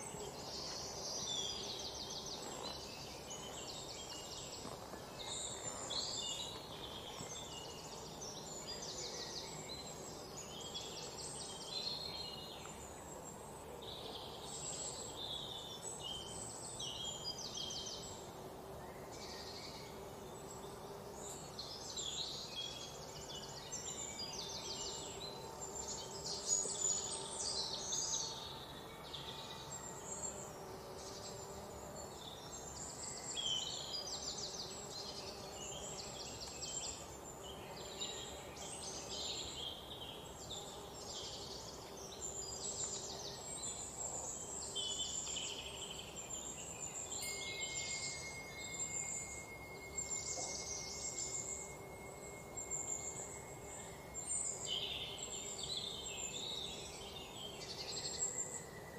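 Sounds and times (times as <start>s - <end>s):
small birds chirping: 30.2s - 58.9s.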